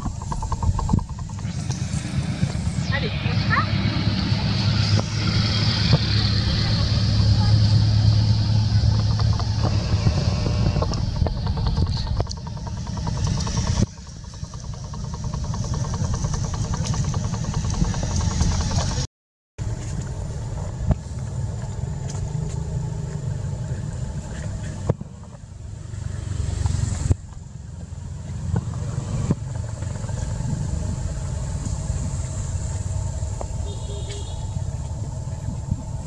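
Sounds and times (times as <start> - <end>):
wind buffeting microphone: 0.0 - 19.1, 19.7 - 33.7, 34.4 - 36.0
faint high steady whine: 29.4 - 36.0.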